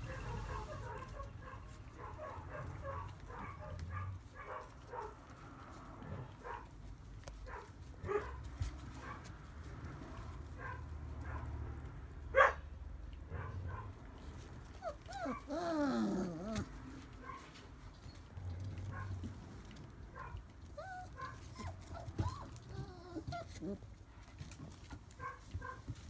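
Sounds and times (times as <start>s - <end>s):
puppies whining whimpers: 14.7s - 16.8s, 20.7s - 24.0s
puppies yipping and squeaking: 14.7s - 19.1s, 20.6s - 23.9s.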